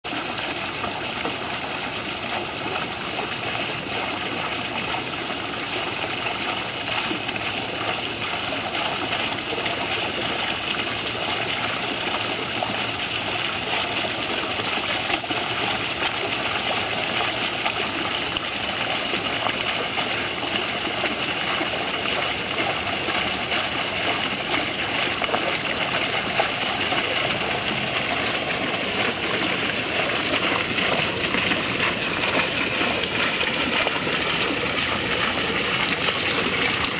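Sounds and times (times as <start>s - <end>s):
fountain water splashing: 0.0s - 36.9s.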